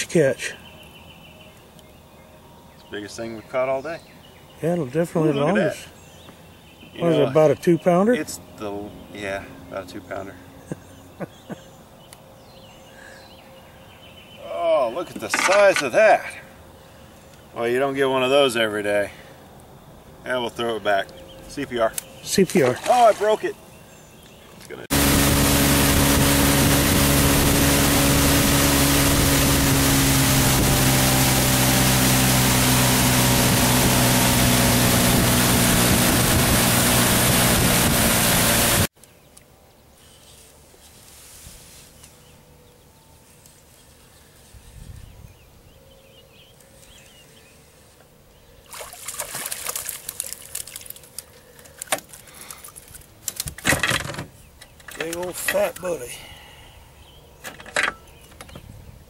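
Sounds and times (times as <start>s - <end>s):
open water sound: 22.3s - 23.6s, 24.4s - 38.2s, 48.6s - 53.5s
rush of wind and water: 24.9s - 38.8s
outboard motor running: 24.9s - 38.9s.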